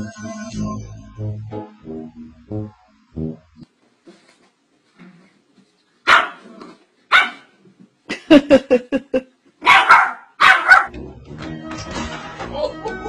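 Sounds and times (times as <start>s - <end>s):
music: 0.0s - 3.6s, 10.9s - 13.0s
small dog barking: 6.1s - 6.5s, 7.1s - 7.5s, 9.6s - 10.9s.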